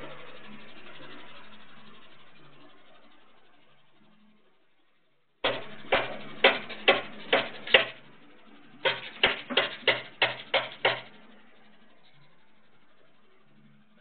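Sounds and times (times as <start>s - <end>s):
sharp knocks: 5.4s - 8.0s, 8.8s - 11.1s.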